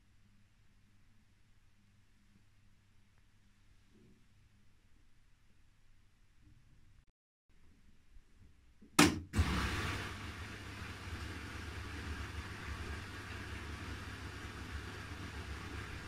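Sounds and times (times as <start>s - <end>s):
sharp loud knock: 9.0s - 9.4s.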